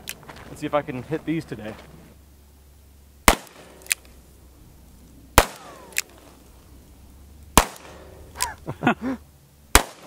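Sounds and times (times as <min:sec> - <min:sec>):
handgun shots: 0:03.3 - 0:04.1, 0:05.4 - 0:06.2, 0:07.6 - 0:08.6, 0:09.7 - 0:10.0.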